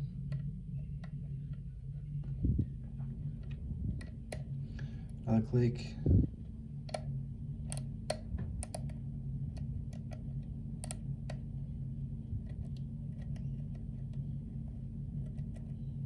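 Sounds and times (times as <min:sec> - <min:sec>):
steady low hum: 0:00.0 - 0:16.0
lock pick clicking on pins: 0:06.9 - 0:11.4.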